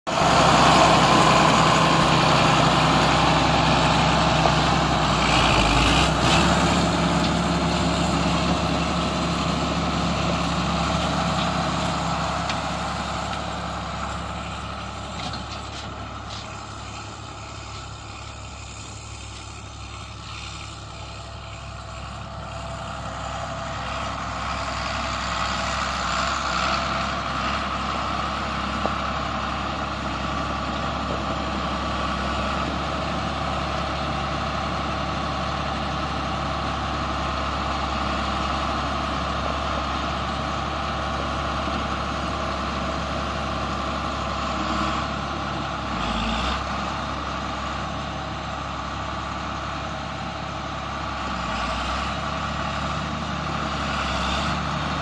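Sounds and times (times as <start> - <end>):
diesel tractor engine running: 0.0 - 55.0.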